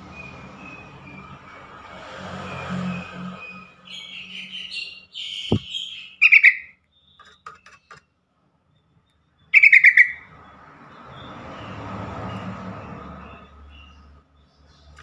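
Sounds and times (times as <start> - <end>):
bird chattering: 5.2 - 6.7, 9.6 - 10.2.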